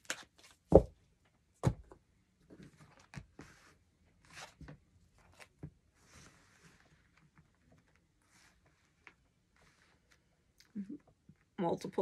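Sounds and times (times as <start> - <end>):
cards laid on cloth table: 2.5 - 10.3.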